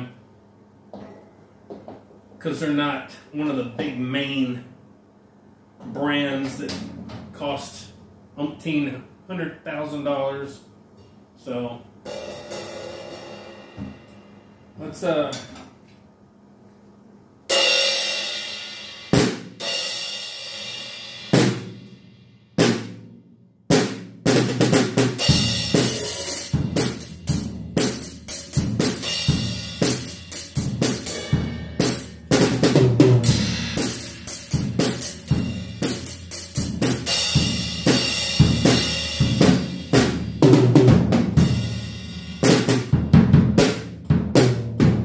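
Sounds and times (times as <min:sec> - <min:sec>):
drum kit groove: 0:05.9 - 0:07.8, 0:17.5 - 0:45.0.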